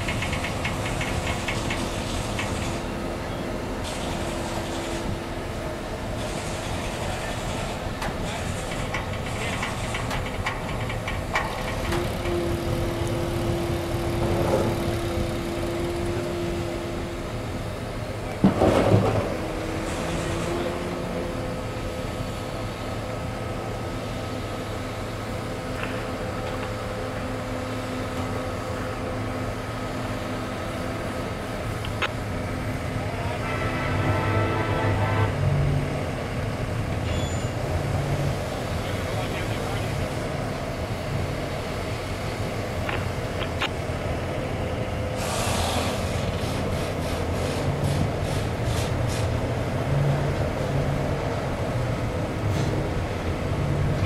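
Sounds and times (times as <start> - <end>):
diesel engine running: 0.0 - 54.0
loud burst of noise: 45.2 - 49.2.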